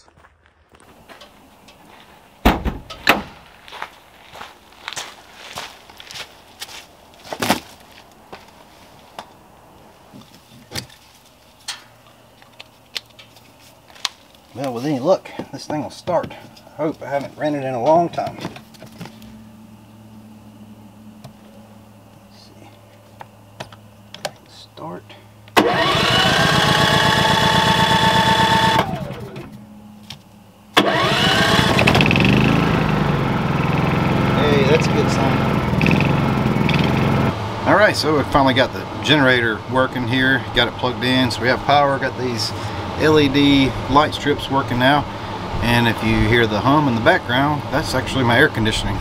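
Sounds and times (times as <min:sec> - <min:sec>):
footsteps crunching on dry leaves: 0:00.0 - 0:02.4, 0:03.3 - 0:09.3, 0:13.4 - 0:15.0
generator engine running: 0:25.2 - 0:49.0.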